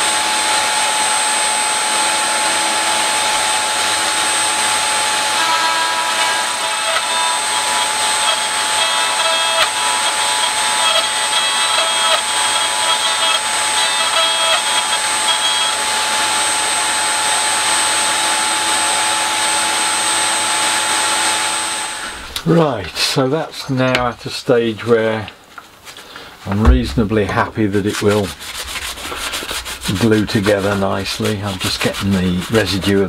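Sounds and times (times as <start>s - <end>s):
electric router whining: 0.0s - 22.5s
router cutter shaving wood: 0.1s - 22.2s, 27.8s - 33.0s.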